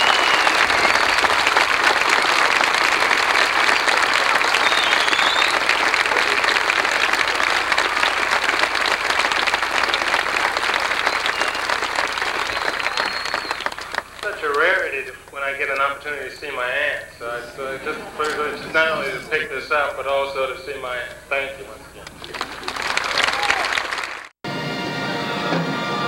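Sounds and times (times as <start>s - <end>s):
crowd applauding: 0.0s - 24.4s.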